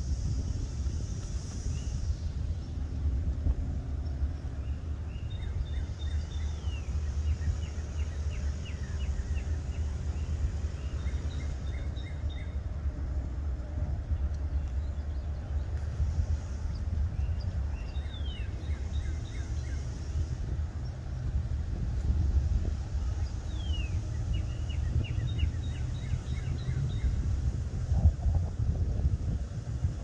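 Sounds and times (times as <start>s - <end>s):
wind buffeting microphone: 0.0s - 30.0s
birds chirping: 3.9s - 13.0s, 14.0s - 21.8s, 22.4s - 28.2s.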